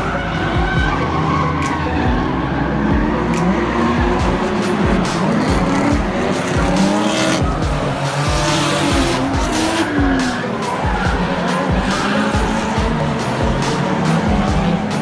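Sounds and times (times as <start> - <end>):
tyre squeal and screech: 0.0 - 4.4
car engines revving: 0.0 - 15.0
music with steady beat: 0.0 - 15.0.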